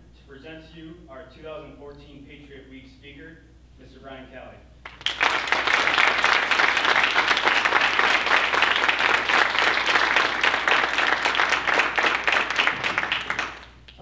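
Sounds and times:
audience applauding: 4.8 - 14.0.

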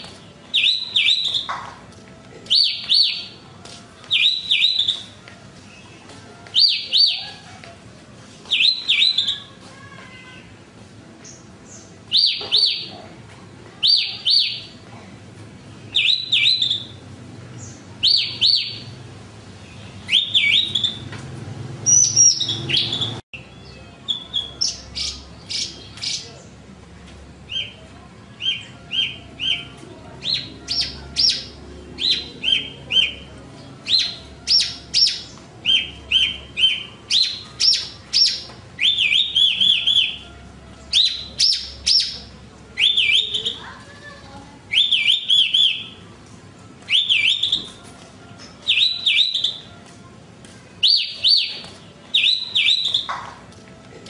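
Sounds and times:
bird chirping: 0.0 - 1.6, 4.1 - 5.2, 15.9 - 17.0, 17.6 - 19.0, 19.6 - 21.1, 21.8 - 26.4, 28.4 - 43.6, 44.7 - 46.0, 46.9 - 47.8, 48.4 - 49.6, 50.8 - 53.2.

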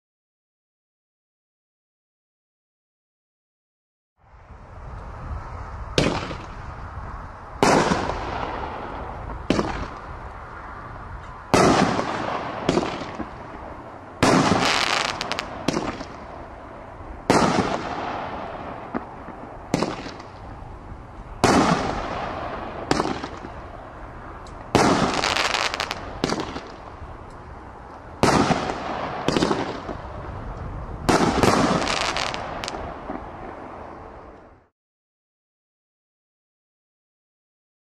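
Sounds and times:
fireworks rumble and crackle: 4.3 - 34.7
fireworks bangs: 5.9 - 6.8, 7.6 - 10.2, 11.4 - 20.6, 21.3 - 23.9, 24.6 - 27.0, 28.2 - 30.3, 31.0 - 33.7.

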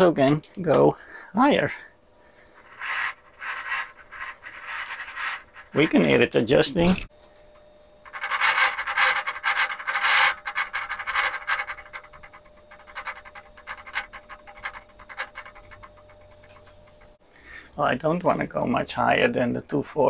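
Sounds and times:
faint steady hum: 0.0 - 20.0
servo motor brush scratching: 2.6 - 6.1.

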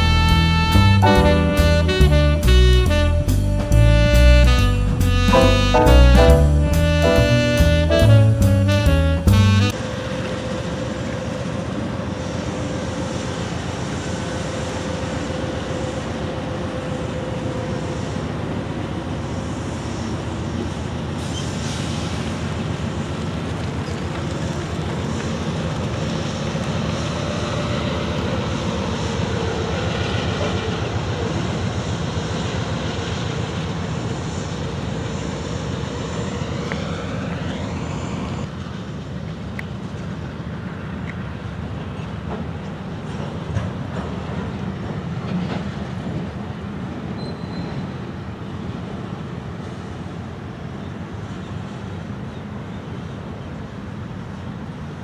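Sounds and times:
diesel locomotive engines droning: 0.0 - 55.0
train cars rumbling on rails: 0.0 - 55.0
wheel squeal: 47.2 - 48.0.

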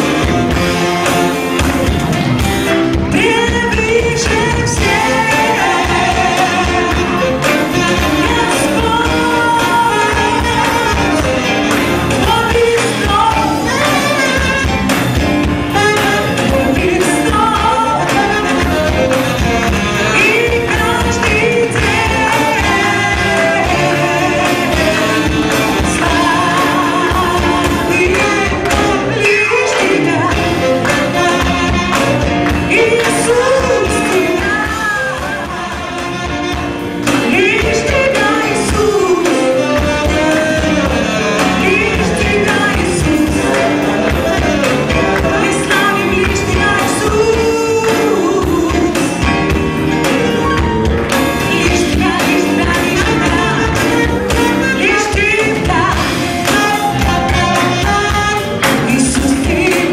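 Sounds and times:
drums: 0.0 - 59.9
electric and acoustic guitars: 0.0 - 59.9
saxophone: 0.0 - 59.9
women singing: 3.0 - 14.8, 15.6 - 59.9.

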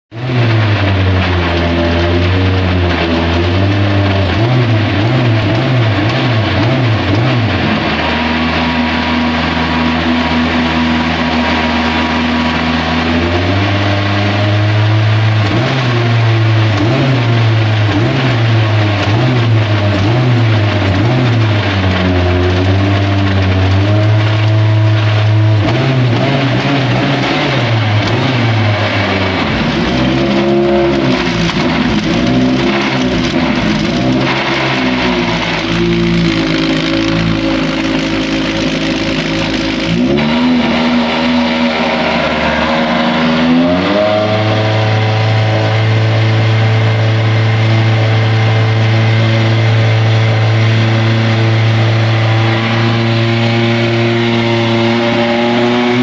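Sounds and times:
race car engine idling: 14.0 - 55.1.

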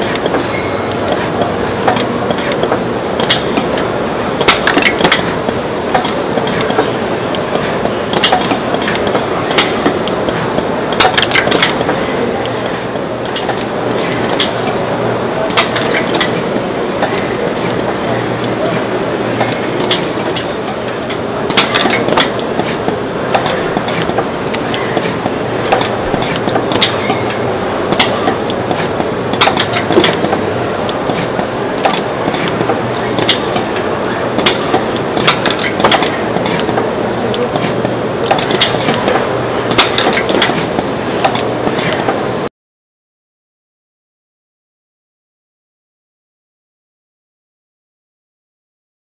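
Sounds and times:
machine hum and hiss: 0.0 - 42.5.

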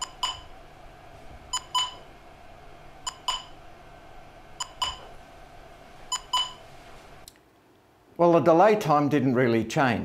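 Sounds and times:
steady hum: 0.0 - 8.8
short pitched beeps: 1.6 - 2.0.

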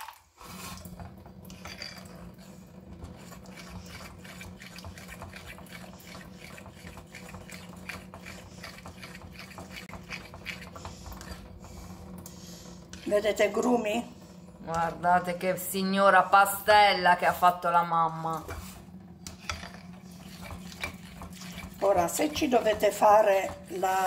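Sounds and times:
steady low hum: 0.5 - 24.0
fork beating batter in bowl: 3.1 - 11.5, 18.4 - 24.0.

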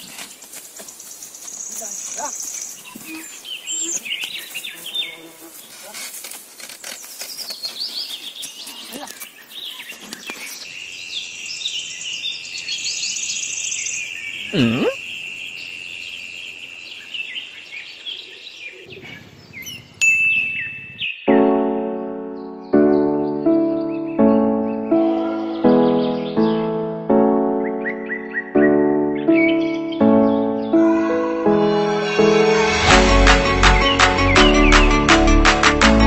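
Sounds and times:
birds chirping and trilling: 0.0 - 32.2, 33.2 - 35.1
swooping cartoon sound effect: 14.6 - 15.0
piano music: 21.2 - 36.0.

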